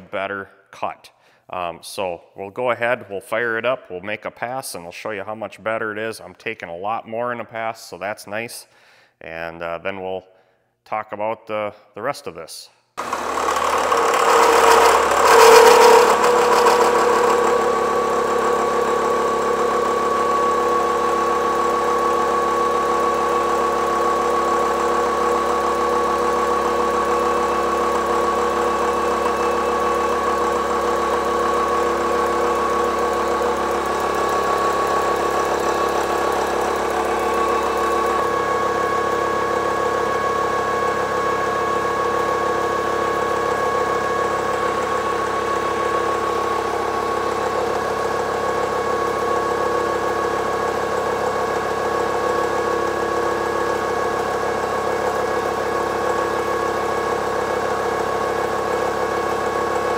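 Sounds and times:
milling machine cutting steel: 13.0s - 48.2s
held high tone: 22.2s - 41.6s.

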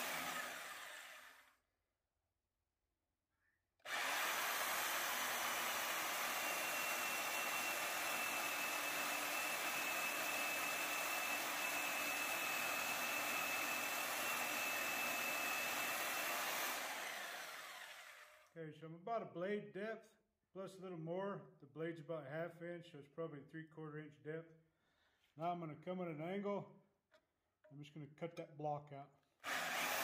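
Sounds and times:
jigsaw cutting steel: 0.0s - 1.6s, 3.8s - 18.5s, 29.4s - 30.0s.

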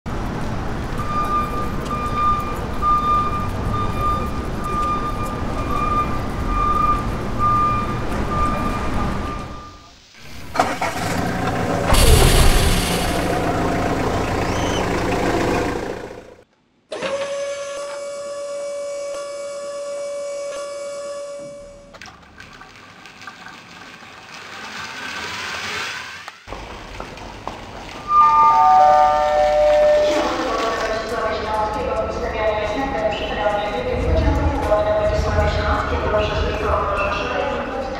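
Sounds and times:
toy train rumbling on track: 10.2s - 16.4s, 22.9s - 35.8s
toy train motor whine: 16.9s - 21.7s.

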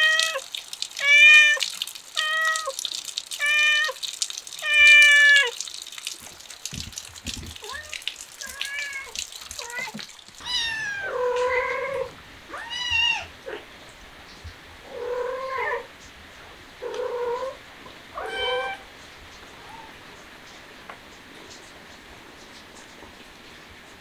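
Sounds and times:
cat meowing: 1.0s - 1.6s, 2.2s - 2.8s, 3.4s - 4.0s, 4.6s - 5.6s, 7.6s - 13.6s, 14.9s - 15.9s, 18.2s - 18.9s, 19.6s - 20.0s.

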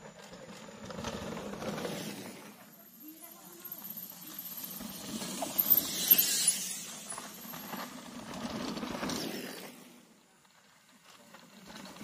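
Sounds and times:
bike tyres on dirt: 0.0s - 12.0s
bike chain and freewheel clicking: 0.3s - 9.8s.

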